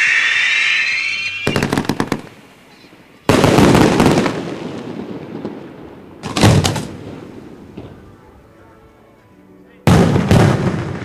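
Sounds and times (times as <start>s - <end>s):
firework cracks: 0.0s - 2.5s, 3.3s - 7.3s
firework whistle: 0.0s - 2.9s
firework boom echoing: 1.3s - 2.4s.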